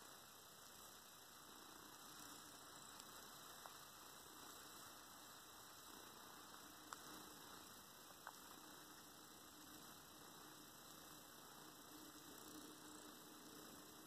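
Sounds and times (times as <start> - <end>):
tiny clicks: 6.5 - 7.1, 8.1 - 8.6.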